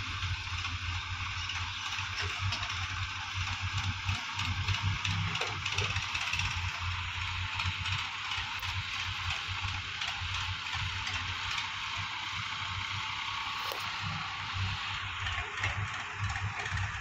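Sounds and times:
diesel tractor engine chugging: 0:00.0 - 0:17.0.

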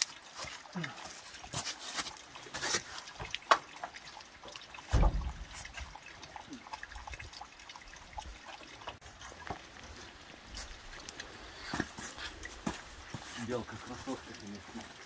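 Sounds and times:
water dripping and trickling: 0:00.0 - 0:15.0
heavy dull thump: 0:04.9 - 0:05.6.

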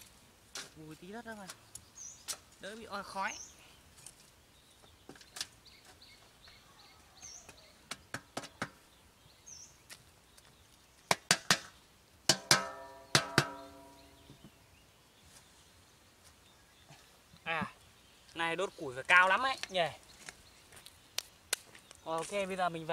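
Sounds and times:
cleaver clanking on metal drum: 0:12.3 - 0:14.0.

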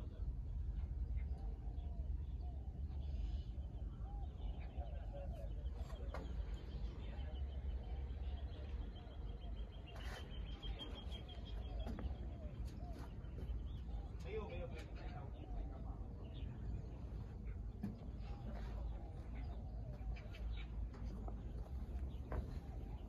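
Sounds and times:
small birds chirping: 0:00.0 - 0:23.0
steady low rumble: 0:00.0 - 0:23.0.

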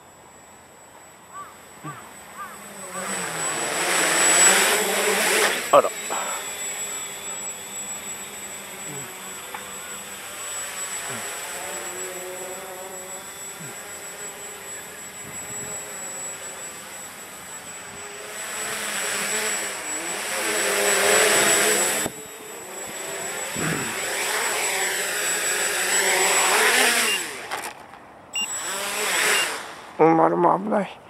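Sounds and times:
quadcopter propellers buzzing: 0:00.0 - 0:30.2.

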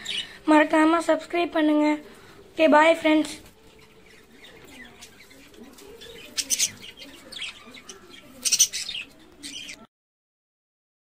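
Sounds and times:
budgerigars chirping and chattering: 0:03.6 - 0:09.9.

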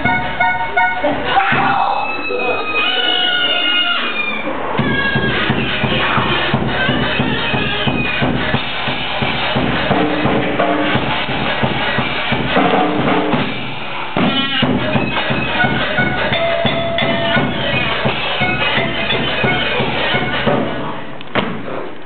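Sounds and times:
live band music: 0:00.0 - 0:01.5, 0:14.2 - 0:20.9
bass drum and snare strikes: 0:04.8 - 0:21.9.

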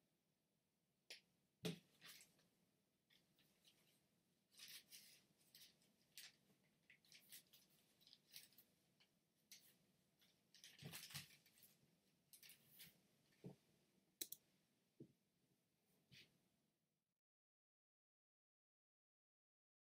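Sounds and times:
paper rustling and crinkling: 0:03.1 - 0:11.8.

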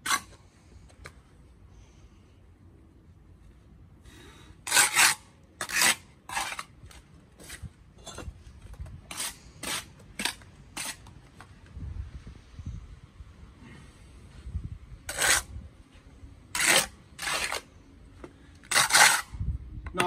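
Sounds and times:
trowel scraping mortar on block: 0:00.0 - 0:00.5, 0:04.6 - 0:08.3, 0:09.0 - 0:11.1, 0:15.1 - 0:15.5, 0:16.5 - 0:17.7, 0:18.6 - 0:19.4.

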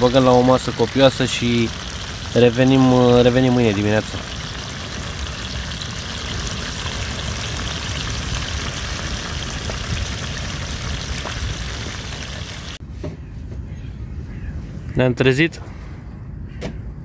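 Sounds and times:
faint crackles: 0:00.0 - 0:12.8
food sizzling in a pan: 0:00.0 - 0:12.8.

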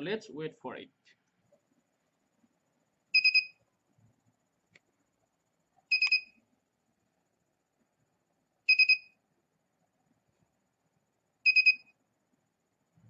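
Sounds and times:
alarm clock buzzer beeps: 0:03.2 - 0:03.6, 0:05.9 - 0:06.4, 0:08.7 - 0:09.2, 0:11.4 - 0:12.0.

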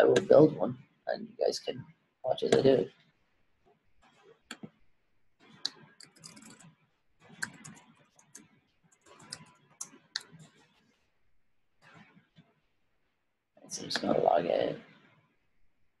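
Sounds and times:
keyboard typing: 0:02.4 - 0:02.9, 0:05.5 - 0:10.7.

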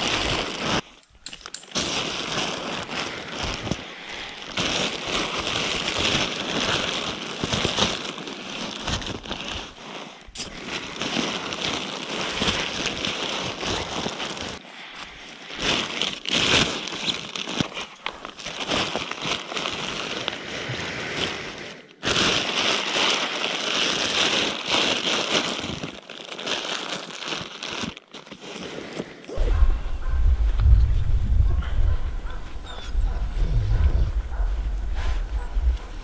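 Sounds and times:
plastic liner rustling: 0:00.0 - 0:14.6.

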